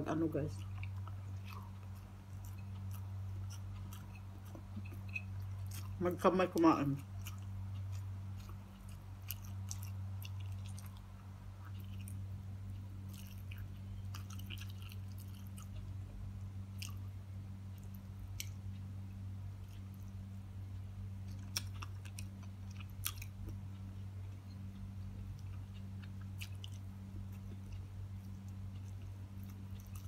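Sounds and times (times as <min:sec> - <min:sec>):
steady low hum: 0:00.0 - 0:30.0
close-up chewing: 0:00.3 - 0:20.4, 0:21.2 - 0:30.0.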